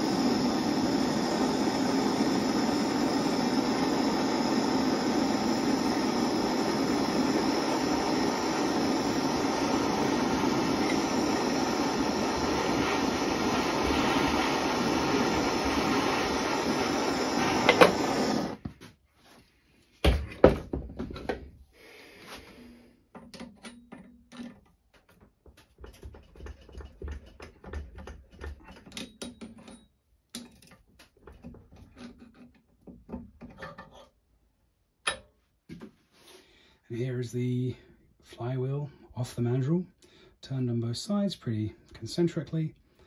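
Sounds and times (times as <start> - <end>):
gas torch hissing: 0.0 - 18.7.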